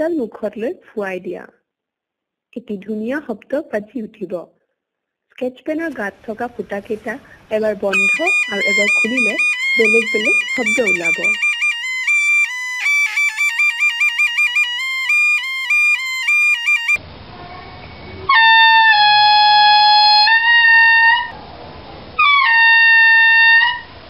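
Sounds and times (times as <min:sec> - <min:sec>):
homemade membrane pipe tone: 0:07.9 - 0:17.0, 0:18.3 - 0:21.3.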